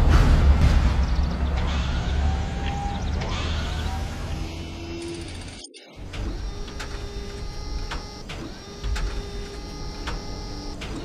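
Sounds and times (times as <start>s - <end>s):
machine motors whining: 1.5s - 11.0s
sharp clicks: 5.0s - 11.0s.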